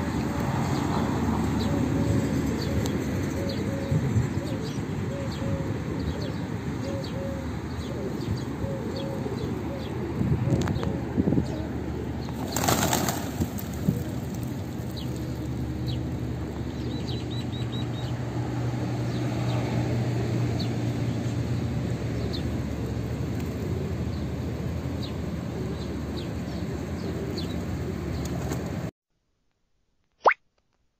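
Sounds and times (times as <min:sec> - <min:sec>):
pigeon wings flapping: 0:12.3 - 0:15.8.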